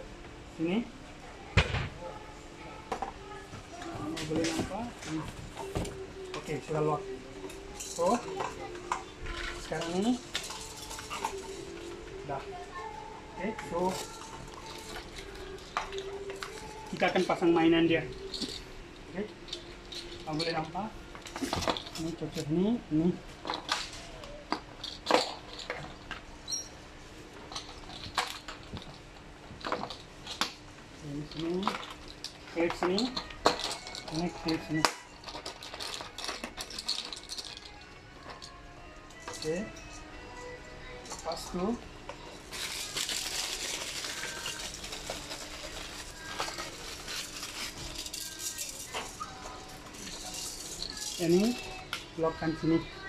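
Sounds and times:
plastic toy rattling clicks: 33.2s - 38.5s
plastic bag crinkling: 42.4s - 49.4s.

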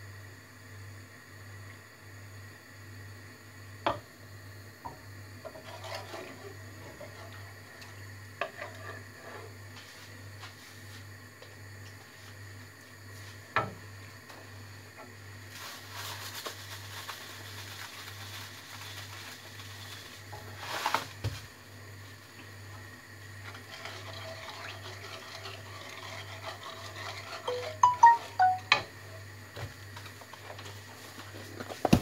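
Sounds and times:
spatula scraping frying pan: 5.4s - 7.6s, 8.4s - 9.7s, 23.4s - 28.5s.

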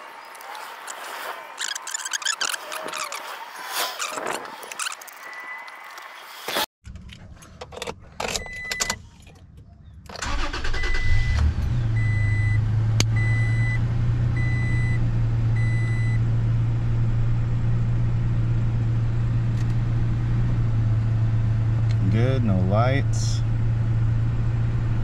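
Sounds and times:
engine cranking and idling: 6.8s - 12.5s.

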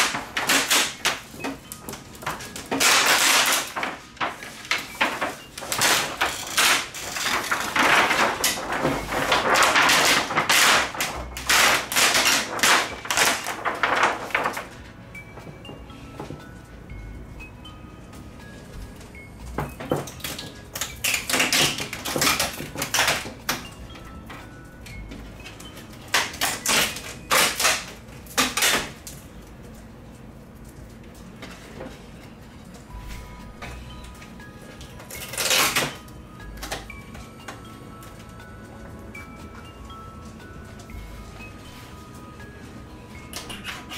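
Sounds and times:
plastic sheet crinkling: 0.0s - 14.9s.

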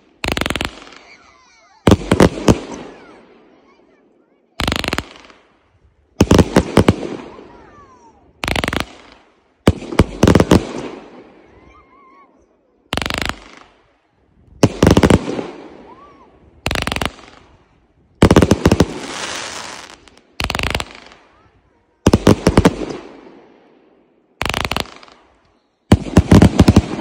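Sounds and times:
fireworks bursting with crackling: 0.0s - 3.9s, 4.6s - 12.0s, 12.9s - 23.8s, 24.4s - 27.0s
fireworks whistles: 18.7s - 21.2s, 24.5s - 27.0s.

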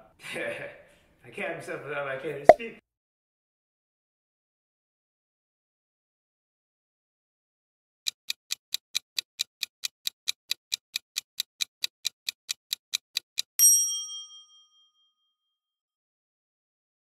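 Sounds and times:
quick clock ticks: 8.1s - 13.6s
bright bell ding: 13.6s - 15.2s.

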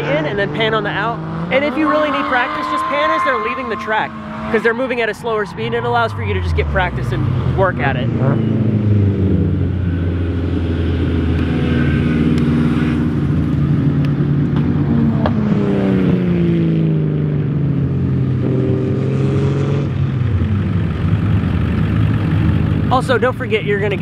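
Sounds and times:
drift car engines revving: 0.0s - 17.3s.

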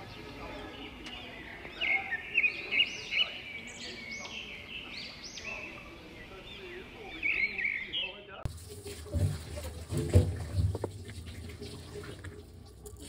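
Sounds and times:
small birds chirping: 0.0s - 8.4s.

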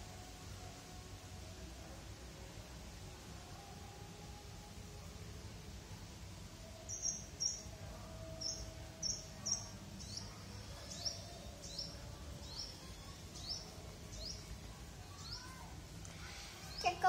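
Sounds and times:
bird chirping: 6.8s - 15.6s.

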